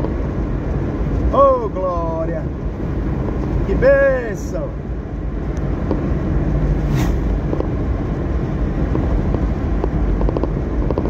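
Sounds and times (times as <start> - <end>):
car cabin engine and tyre rumble: 0.0 - 11.0
car whooshing past: 6.4 - 7.8.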